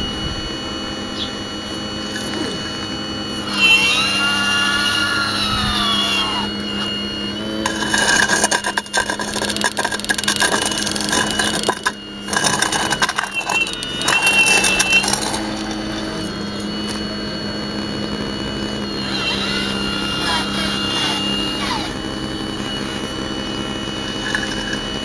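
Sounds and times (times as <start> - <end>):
small motors whining: 0.0 - 25.0
bucket scraping through rubble: 7.4 - 17.0, 24.2 - 24.9.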